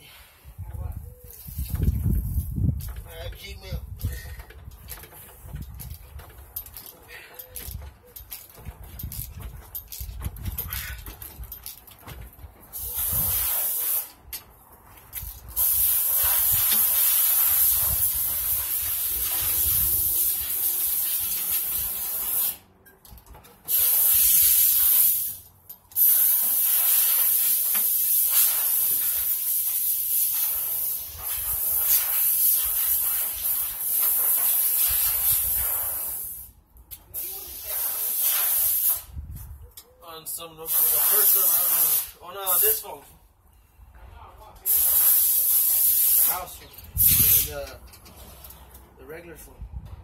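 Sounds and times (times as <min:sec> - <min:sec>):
spray paint can hissing: 0:12.7 - 0:14.2, 0:15.2 - 0:22.7, 0:23.7 - 0:39.2, 0:40.7 - 0:42.8, 0:44.6 - 0:47.6.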